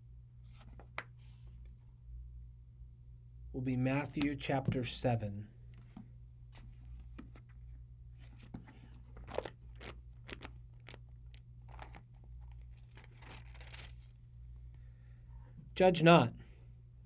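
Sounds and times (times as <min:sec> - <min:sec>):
low electrical hum: 0:00.0 - 0:17.0
book pages turning: 0:00.4 - 0:01.4, 0:05.8 - 0:14.2.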